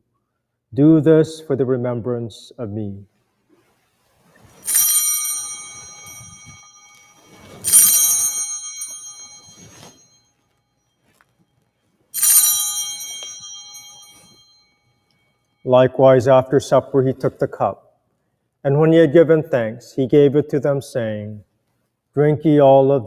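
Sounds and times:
bells jangling: 0:04.4 - 0:15.8.

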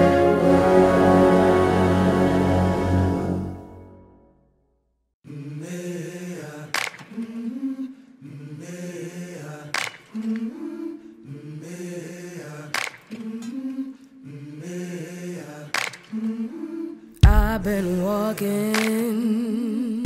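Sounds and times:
low voices chanting a cappella: 0:05.3 - 0:20.0.

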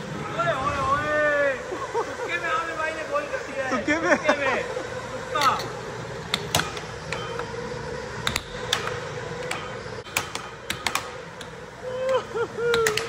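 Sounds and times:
steady hum: 0:00.0 - 0:13.0
air hockey puck clacking: 0:06.3 - 0:07.6, 0:08.2 - 0:13.0.

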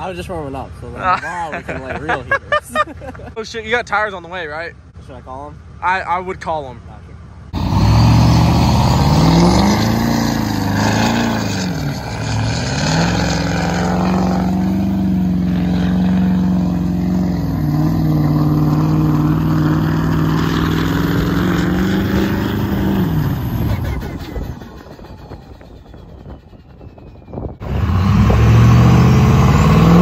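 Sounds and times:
diesel pickup engine revving: 0:07.5 - 0:30.0.

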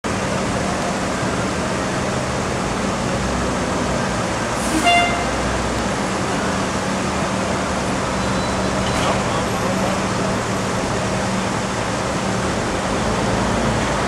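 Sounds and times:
diesel engine idling: 0:00.1 - 0:14.0
horn toot: 0:04.6 - 0:05.4.

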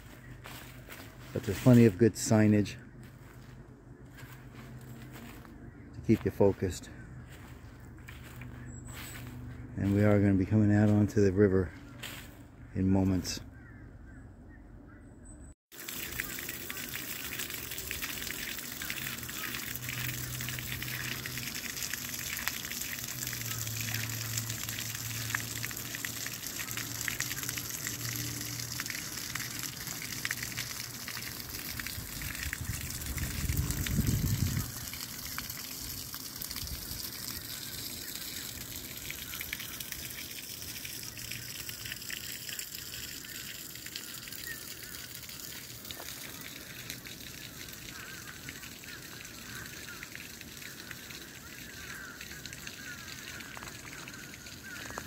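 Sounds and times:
breeze through trees: 0:00.0 - 0:55.0
wind buffeting microphone: 0:31.7 - 0:34.9.

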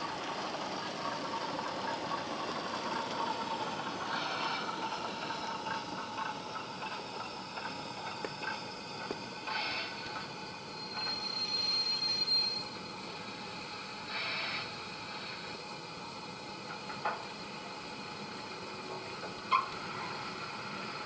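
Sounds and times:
brake squeal: 0:00.0 - 0:21.0
steady background hiss: 0:00.0 - 0:21.0
short steam hiss: 0:02.0 - 0:16.2.

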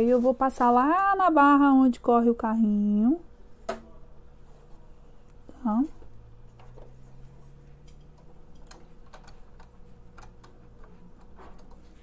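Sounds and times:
faint low hum: 0:00.0 - 0:12.0
faint clicks and taps on machine: 0:07.8 - 0:12.0.

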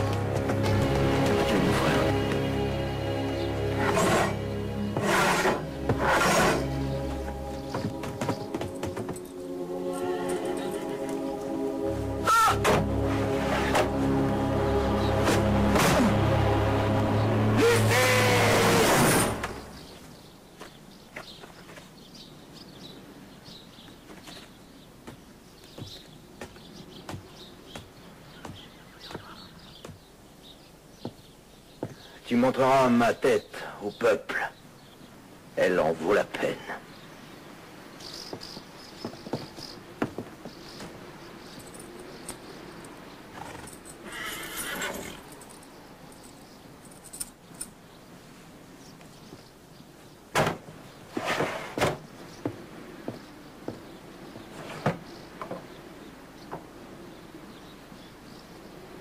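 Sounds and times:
faint birds chirping: 0:00.0 - 0:18.4, 0:19.4 - 0:59.0
horse whinnying: 0:05.0 - 0:06.8, 0:43.4 - 0:45.3.

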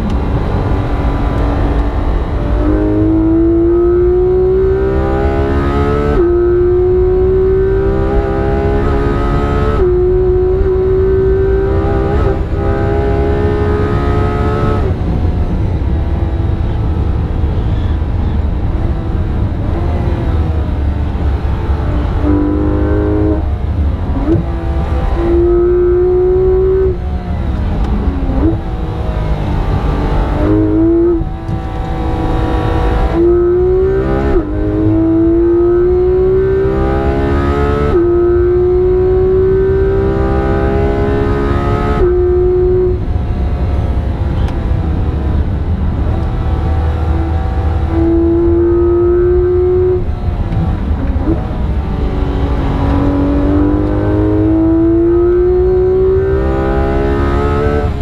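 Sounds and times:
car engine at full throttle: 0:00.0 - 0:58.0
road and tyre rumble: 0:00.0 - 0:58.0.

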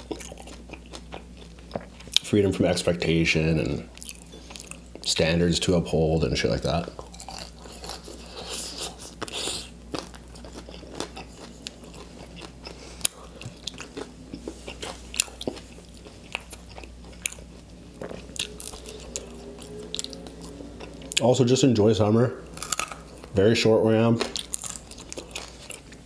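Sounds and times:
crunchy chewing and biting: 0:00.0 - 0:02.3, 0:06.9 - 0:21.3, 0:22.4 - 0:23.4, 0:24.0 - 0:26.0.

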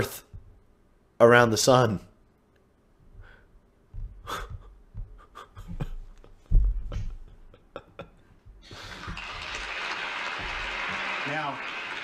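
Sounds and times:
low thumps on microphone: 0:00.3 - 0:00.7, 0:03.9 - 0:07.3
soft breaths: 0:03.0 - 0:05.8.

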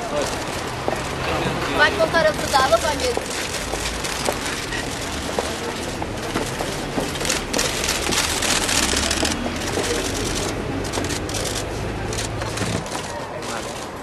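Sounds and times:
rapid camera shutter clicks: 0:06.2 - 0:14.0.

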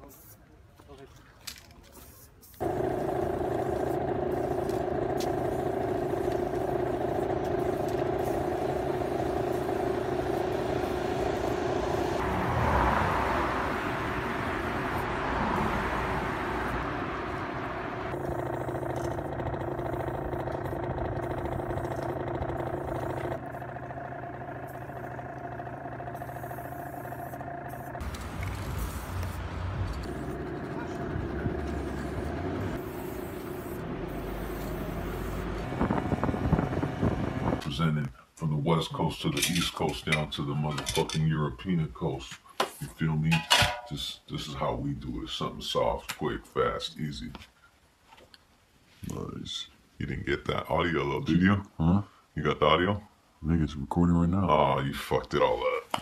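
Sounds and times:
city traffic hum: 0:00.4 - 0:37.8
loud rushing noise: 0:08.8 - 0:18.2.

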